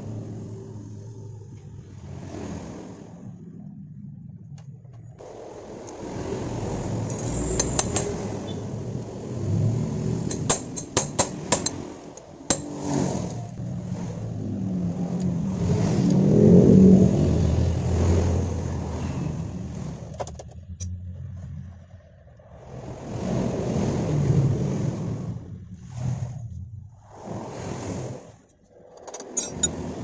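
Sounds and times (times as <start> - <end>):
vehicle engine hum: 0.0 - 30.0.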